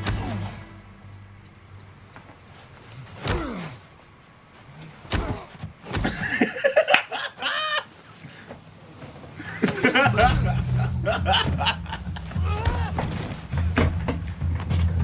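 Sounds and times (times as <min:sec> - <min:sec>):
man laughing in high whoops: 0:09.5 - 0:12.7.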